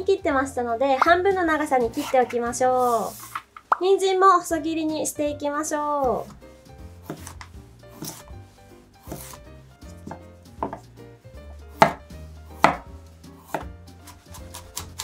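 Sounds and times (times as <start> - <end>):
knife chopping on cutting board: 7.0 - 8.4, 9.0 - 10.9, 11.6 - 15.0.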